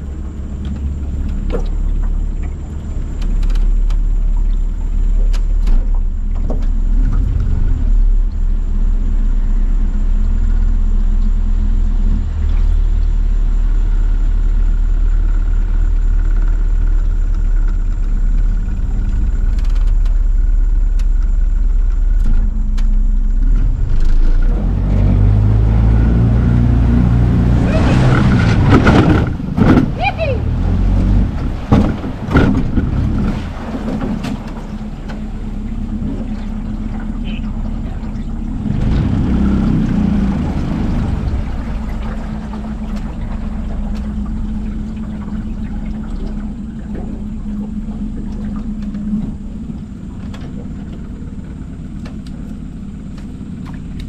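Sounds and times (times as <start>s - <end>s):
outboard motor running: 0.0s - 54.0s
rush of water: 23.4s - 54.0s.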